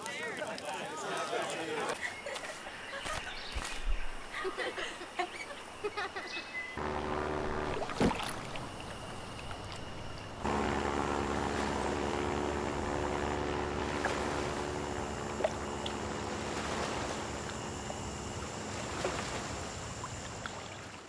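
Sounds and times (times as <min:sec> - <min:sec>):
wind: 0:00.0 - 0:21.0
propeller plane engine droning: 0:04.6 - 0:21.0
water noise: 0:06.8 - 0:21.0.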